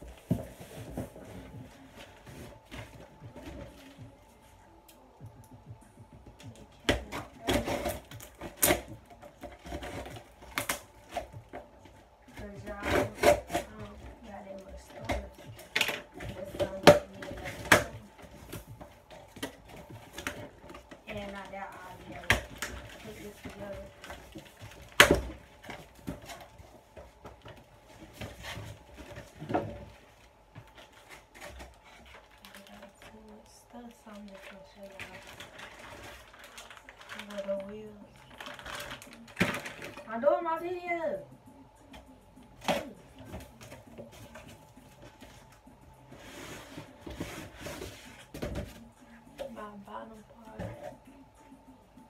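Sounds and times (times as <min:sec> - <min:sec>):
cardboard rustling and scraping: 0:00.0 - 0:04.4, 0:06.5 - 0:40.1, 0:42.5 - 0:49.8
scissors cutting packing tape: 0:06.8 - 0:11.3, 0:12.4 - 0:14.1.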